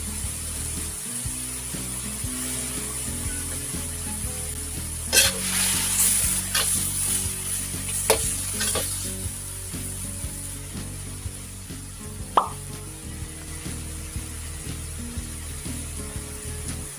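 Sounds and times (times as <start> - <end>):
meat sizzling in a wok: 0.0 - 16.9
ladle scraping a pan: 5.0 - 9.1.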